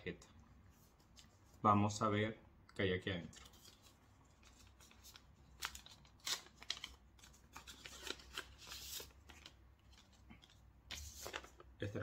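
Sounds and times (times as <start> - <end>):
packet rustling and crinkling: 3.4 - 11.9.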